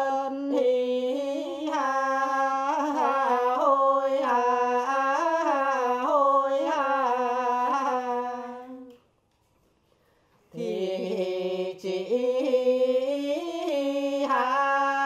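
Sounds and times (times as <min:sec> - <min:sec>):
man singing unaccompanied: 0:00.0 - 0:08.9, 0:10.5 - 0:15.0.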